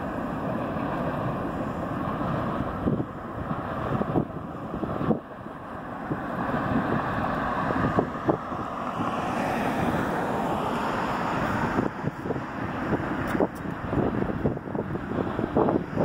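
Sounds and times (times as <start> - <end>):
car passing: 0.0 - 16.0
wind buffeting microphone: 0.0 - 16.0.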